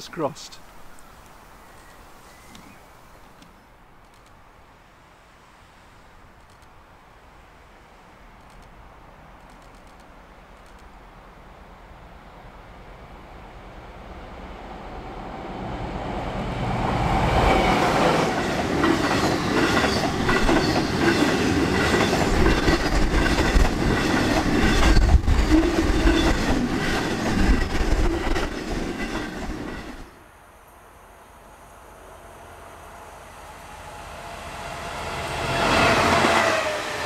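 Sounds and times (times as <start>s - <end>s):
diesel locomotive engine: 11.6s - 37.0s
train wheels clacking on rail joints: 17.6s - 30.1s.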